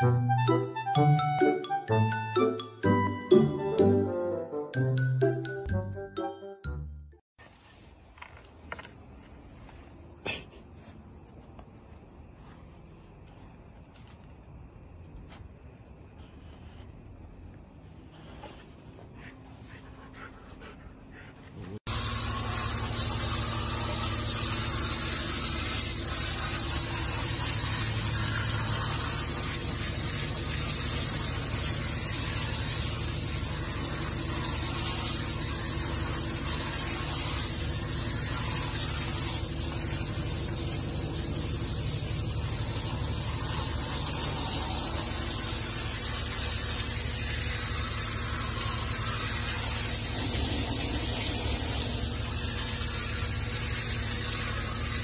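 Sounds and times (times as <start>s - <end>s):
shower sprayer hissing: 21.1s - 55.0s.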